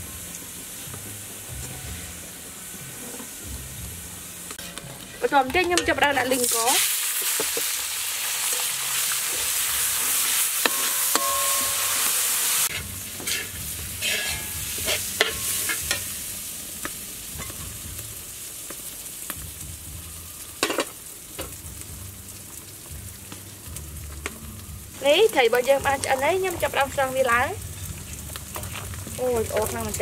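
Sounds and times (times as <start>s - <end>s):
rice sizzling in a wok: 0.0s - 30.0s
metal spoon scraping a wok: 4.5s - 7.8s, 8.4s - 16.2s.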